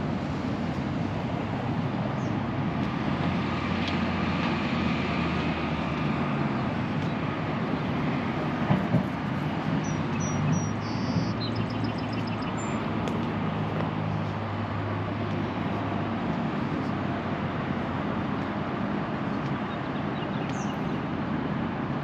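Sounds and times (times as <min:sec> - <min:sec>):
distant road traffic hum: 0:00.0 - 0:22.0
songbird chirping and trilling: 0:09.8 - 0:12.8.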